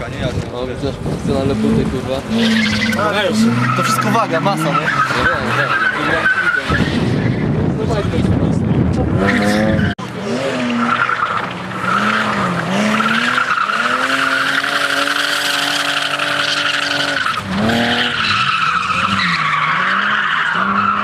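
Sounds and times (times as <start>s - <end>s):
car engine revving: 0.8s - 21.0s
tyres squealing: 2.3s - 7.0s, 10.7s - 21.0s.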